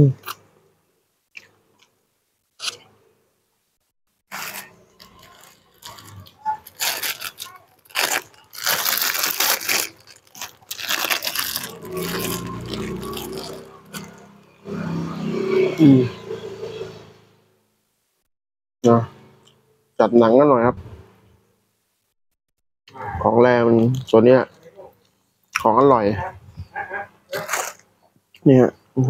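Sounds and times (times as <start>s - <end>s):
plastic bag crinkling: 4.3s - 14.4s, 27.3s - 27.8s.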